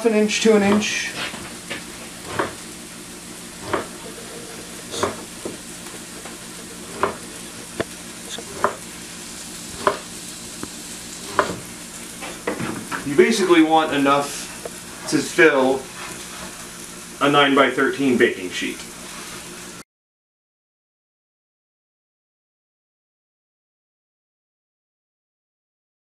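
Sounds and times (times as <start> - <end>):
vegetables sizzling in a skillet: 0.0 - 19.8
knife chopping bread on wooden board: 2.2 - 2.6, 3.6 - 3.9, 6.9 - 7.2, 8.5 - 8.8, 9.8 - 10.1, 11.3 - 11.6.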